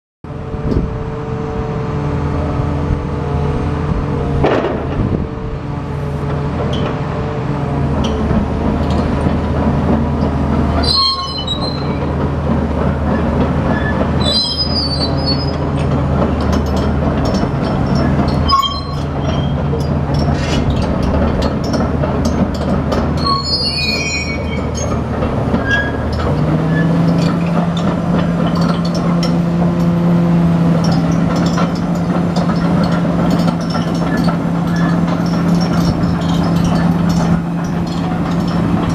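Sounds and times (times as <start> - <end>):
excavator diesel engine running: 0.3 - 38.9
high-pitched metallic squeals: 10.7 - 12.1, 13.1 - 15.6, 17.6 - 21.8, 23.1 - 30.0, 30.8 - 38.9.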